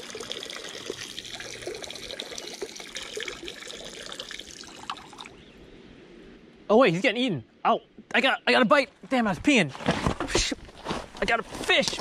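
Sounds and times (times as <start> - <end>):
person urinating into water: 0.0 - 5.4.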